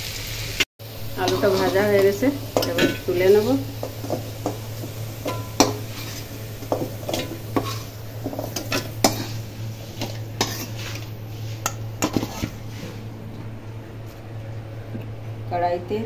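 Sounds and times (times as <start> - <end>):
low hum: 0.8 - 16.0
metal spoon scraping steel pan: 1.2 - 13.0.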